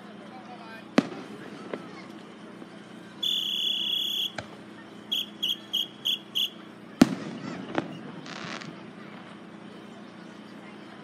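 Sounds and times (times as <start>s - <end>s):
firework bang: 1.0s - 2.0s, 7.0s - 8.8s
high whistle blasts: 3.2s - 4.4s, 5.1s - 6.7s.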